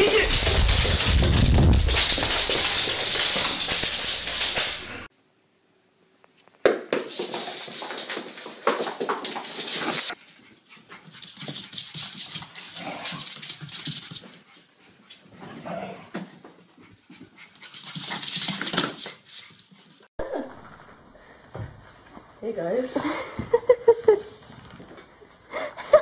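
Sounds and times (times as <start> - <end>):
dog claws on wooden floor: 0.0 - 5.1
dog panting: 9.9 - 20.0.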